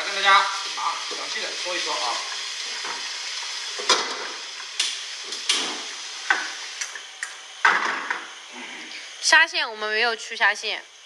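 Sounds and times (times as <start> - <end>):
water sizzling in hot wok: 0.0 - 11.0.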